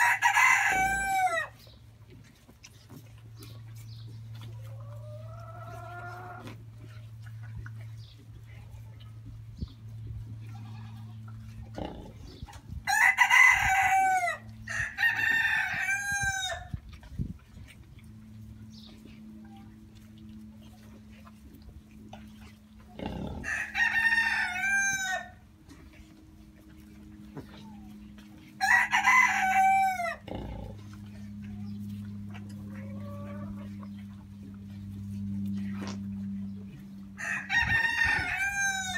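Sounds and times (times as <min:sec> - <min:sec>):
rooster crowing: 0:00.0 - 0:01.5, 0:12.9 - 0:16.7, 0:23.4 - 0:25.4, 0:28.6 - 0:30.2, 0:37.2 - 0:38.9
steady low hum: 0:00.0 - 0:38.9.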